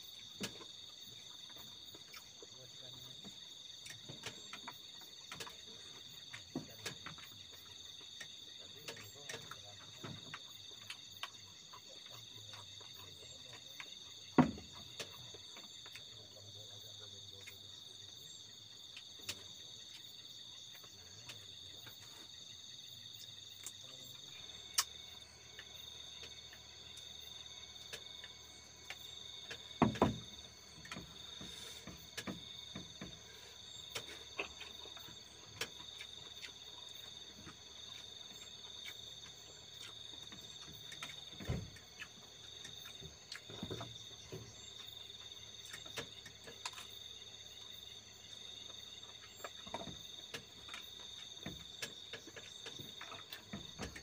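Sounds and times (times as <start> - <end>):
crickets trilling: 0.0 - 54.0
sharp knocks: 29.4 - 34.6.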